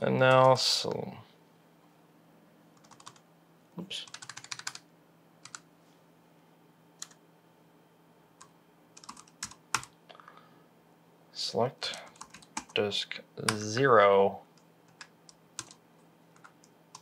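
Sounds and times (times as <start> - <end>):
typing on computer keyboard: 2.8 - 3.2, 4.0 - 4.8, 5.4 - 5.6, 7.0 - 7.2, 8.4 - 9.9, 11.9 - 12.8, 14.6 - 17.0.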